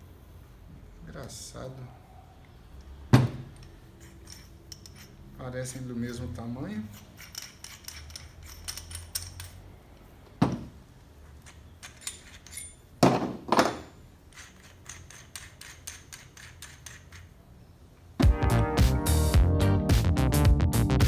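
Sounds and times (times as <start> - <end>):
metallic clicks and clinks: 3.5 - 5.9, 6.9 - 9.8, 11.4 - 12.9, 14.3 - 17.3.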